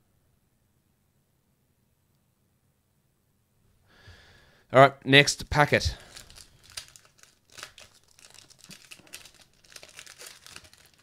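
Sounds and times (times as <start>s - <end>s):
card wrapper crinkling and tearing: 6.0s - 11.0s.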